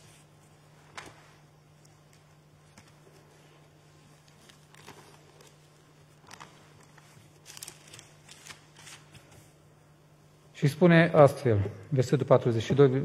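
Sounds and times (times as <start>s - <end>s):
paper pages rustling: 0.0s - 9.6s
steady low hum: 0.0s - 13.0s.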